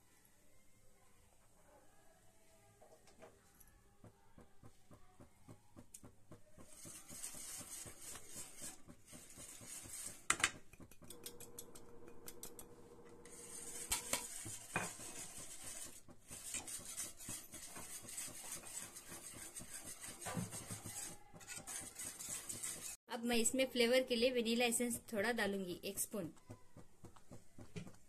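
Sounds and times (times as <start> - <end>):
whisk rattling in metal pan: 6.6 - 11.2, 13.3 - 23.0.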